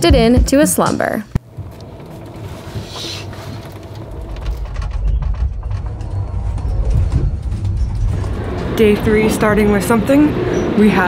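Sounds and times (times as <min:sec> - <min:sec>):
train car rumble: 0:01.4 - 0:11.0
faint clicks and rattles: 0:01.5 - 0:09.1.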